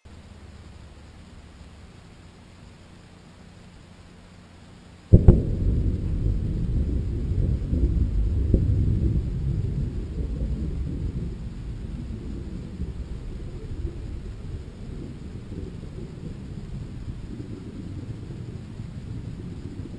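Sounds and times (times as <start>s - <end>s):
sonic boom rumble: 5.1s - 19.9s.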